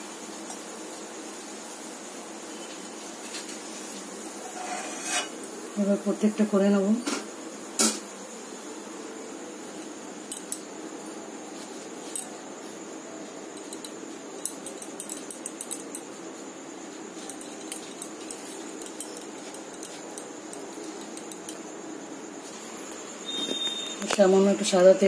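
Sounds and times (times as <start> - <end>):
bangles clinking: 10.2 - 10.7, 12.0 - 12.4, 13.5 - 16.2, 17.0 - 21.8.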